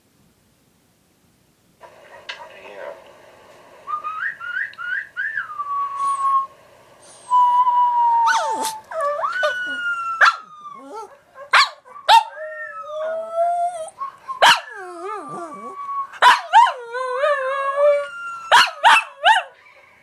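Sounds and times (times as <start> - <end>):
puppy whistle: 3.9 - 6.5, 7.1 - 11.1, 13.6 - 16.6
dog howling and whining: 5.8 - 6.5, 7.1 - 19.8
dog yipping: 8.3 - 16.8, 18.5 - 19.5.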